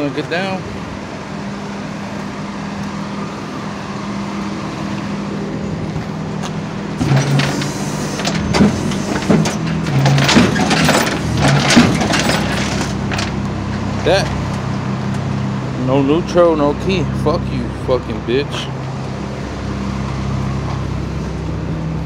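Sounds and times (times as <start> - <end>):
tow truck engine running: 0.0 - 22.0
metal bangs and scraping: 7.0 - 13.4.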